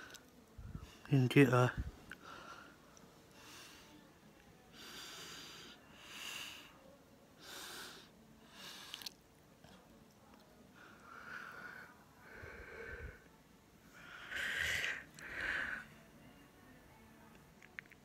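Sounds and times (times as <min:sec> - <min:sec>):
wheezy breathing: 0:02.2 - 0:04.0, 0:04.7 - 0:06.8, 0:07.4 - 0:09.1, 0:10.8 - 0:13.3, 0:13.9 - 0:16.1.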